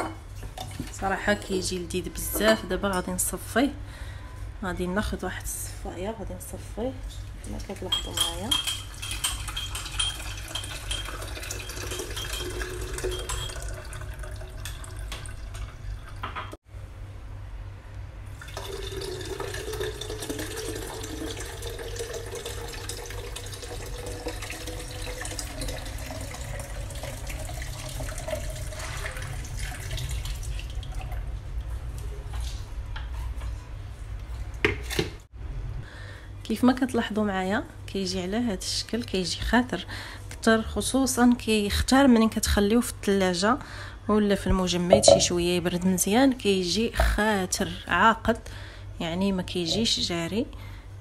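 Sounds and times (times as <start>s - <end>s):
liquid pouring and splashing: 8.9s - 16.3s, 18.4s - 31.3s.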